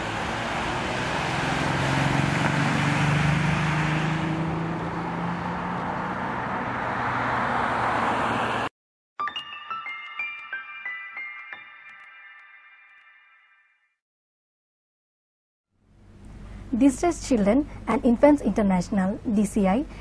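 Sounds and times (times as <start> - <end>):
car passing: 0.0 - 8.7.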